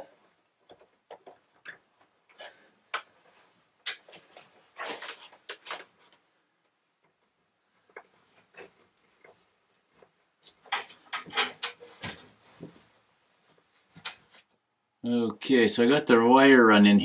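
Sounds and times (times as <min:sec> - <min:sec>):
light clicks and scrapes: 0:07.8 - 0:14.6.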